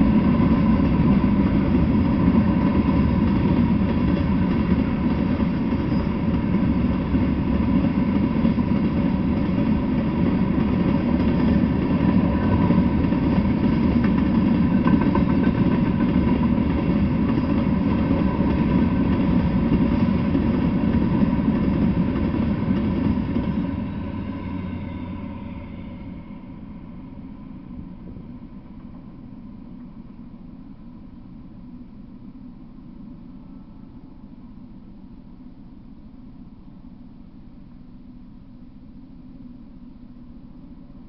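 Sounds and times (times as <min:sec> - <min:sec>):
freight train wheels rumbling on rails: 0:00.0 - 0:31.6.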